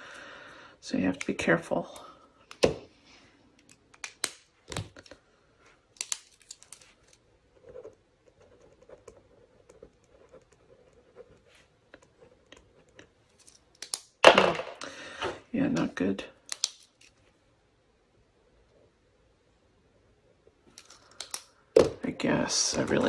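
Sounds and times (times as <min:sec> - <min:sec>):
pen scratching on paper: 0:07.6 - 0:12.9
pens clicking and knocking: 0:16.5 - 0:17.1, 0:20.7 - 0:21.9.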